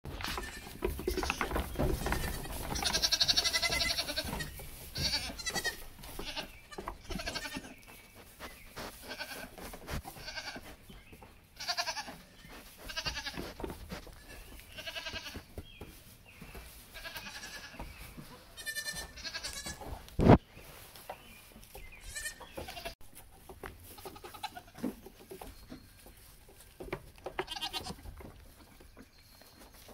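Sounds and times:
goats bleating: 0.1s - 7.8s, 9.0s - 10.7s, 11.6s - 13.6s, 14.7s - 15.4s, 16.9s - 17.8s, 18.6s - 19.9s, 22.0s - 23.0s, 23.9s - 24.8s, 27.4s - 28.0s.

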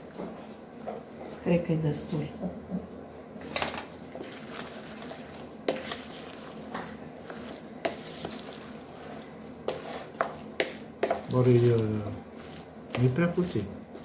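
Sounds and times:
spoon stirring rice in pot: 3.6s - 14.0s.

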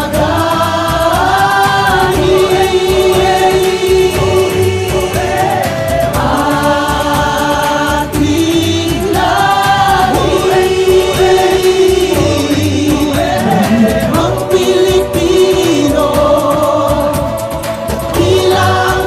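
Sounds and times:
choir-like singing over a beat: 0.0s - 19.0s.

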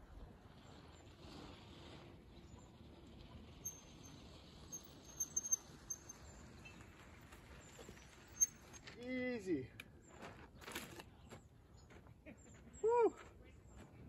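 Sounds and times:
high-pitched chirps: 3.7s - 6.2s.

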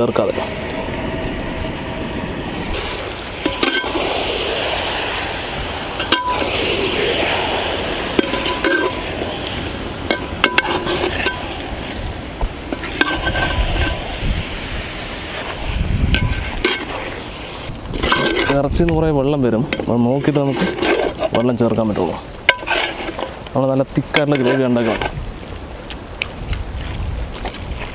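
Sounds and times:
ladle scraping metal pot: 2.7s - 4.2s, 5.9s - 12.0s, 12.7s - 14.0s, 15.3s - 18.8s, 19.7s - 23.4s, 24.0s - 25.2s
meat sizzling: 2.7s - 18.2s.

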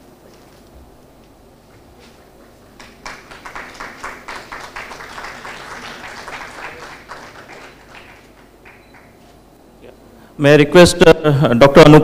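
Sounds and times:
audience applauding: 2.8s - 9.2s.

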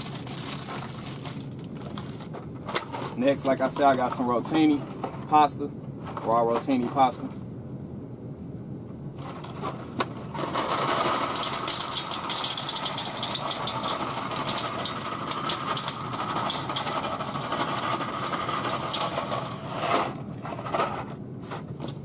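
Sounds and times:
dry pasta pouring into metal pan: 10.5s - 19.7s.

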